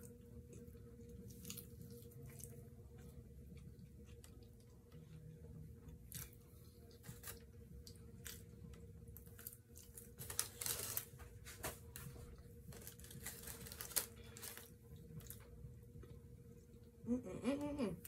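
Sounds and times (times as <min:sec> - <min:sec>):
chewing and crunching: 0:00.0 - 0:11.2, 0:11.9 - 0:16.2
paper liner rustling: 0:09.9 - 0:14.7.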